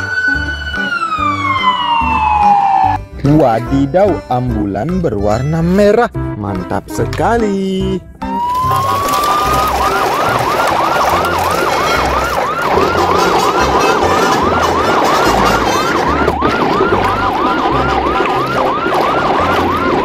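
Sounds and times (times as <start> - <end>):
siren yelping: 0.0 - 3.1, 8.2 - 20.0.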